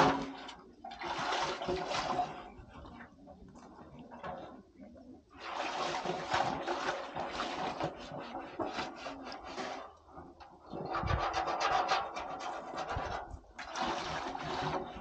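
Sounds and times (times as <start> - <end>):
rubbing and scraping: 10.7 - 15.0.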